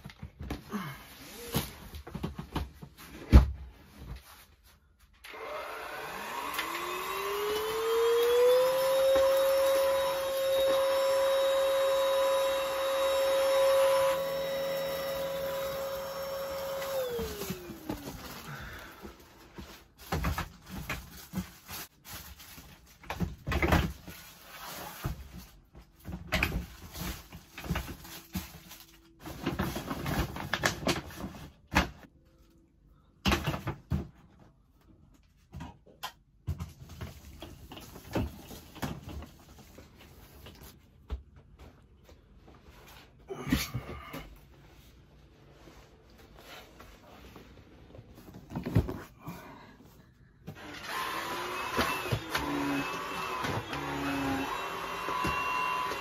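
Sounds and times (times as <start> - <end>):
vacuum cleaner motor whining: 5.2 - 18.9, 50.5 - 56.0.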